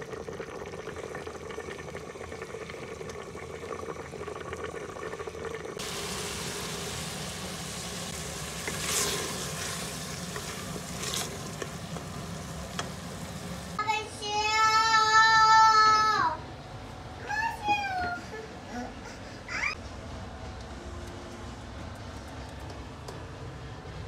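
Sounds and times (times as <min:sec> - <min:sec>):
food simmering in pressure cooker: 0:00.0 - 0:13.8
mince sizzling: 0:00.0 - 0:13.8.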